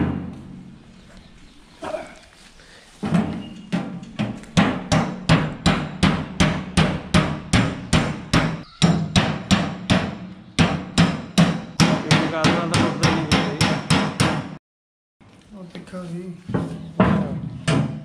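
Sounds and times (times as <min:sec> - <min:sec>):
hammer striking sheet metal: 0:03.1 - 0:14.6.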